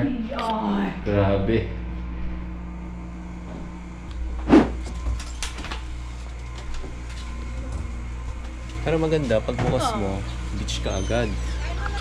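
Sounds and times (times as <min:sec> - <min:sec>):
low room hum: 0:00.0 - 0:12.0
loud thump: 0:04.4 - 0:04.8.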